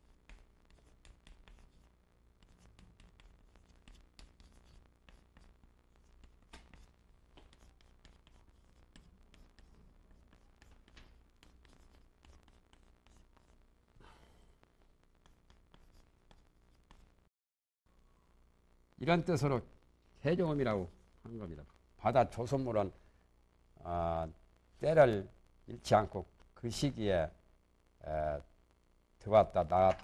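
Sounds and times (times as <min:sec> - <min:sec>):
chalk tapping and scraping: 0:00.0 - 0:13.6, 0:15.2 - 0:17.1.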